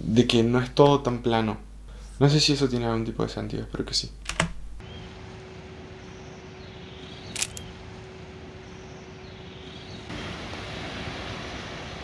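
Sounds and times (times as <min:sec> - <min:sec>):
faint low hum: 0:00.0 - 0:05.1
steady outdoor hiss: 0:00.0 - 0:12.0
camera shutter click: 0:07.4 - 0:07.6.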